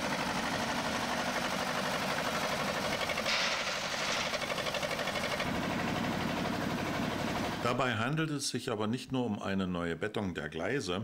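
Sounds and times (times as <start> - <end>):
diesel engine pulsing: 0.0 - 8.1
bright rushing noise: 3.3 - 5.1.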